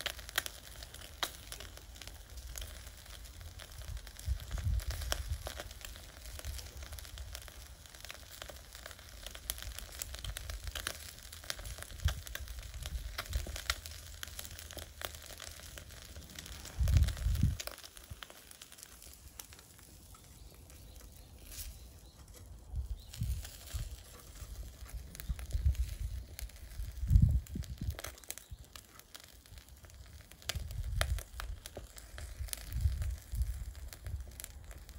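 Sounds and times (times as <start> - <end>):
fat crackling pops: 0.0 - 34.9
fish sizzling over charcoal: 0.0 - 34.9.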